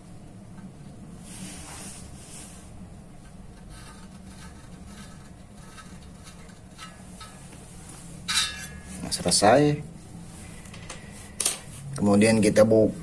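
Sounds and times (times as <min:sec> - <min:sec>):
low steady hum: 0:00.0 - 0:13.0
pencil scratching on steel: 0:03.5 - 0:07.5.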